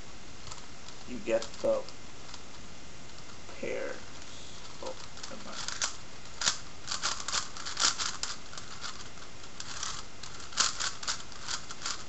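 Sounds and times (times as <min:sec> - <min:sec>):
puzzle cube clicking: 0:00.5 - 0:02.5, 0:04.6 - 0:12.0.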